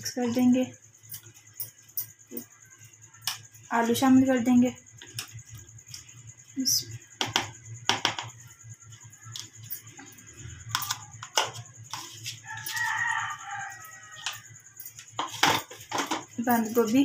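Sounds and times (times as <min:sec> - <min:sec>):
spoon scraping plastic bowl: 0:10.7 - 0:13.2
rooster crowing: 0:12.4 - 0:14.8.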